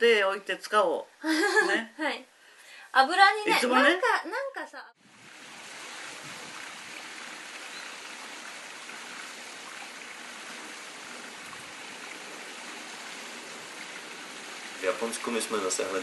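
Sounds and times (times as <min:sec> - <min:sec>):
running water: 0:05.0 - 0:16.0.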